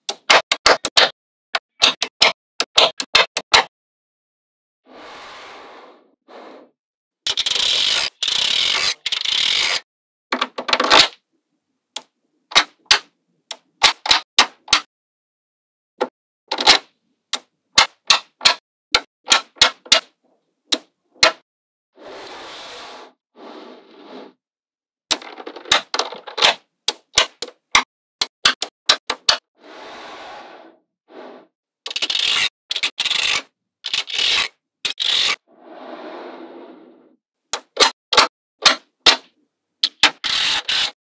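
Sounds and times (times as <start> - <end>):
magnetic balls rattling and scraping: 7.3 - 9.8, 31.9 - 35.4.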